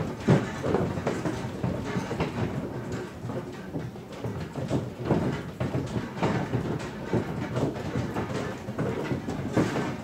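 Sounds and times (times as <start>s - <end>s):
building rattling and creaking: 0.0s - 10.0s
knocks and clatter: 0.0s - 10.0s.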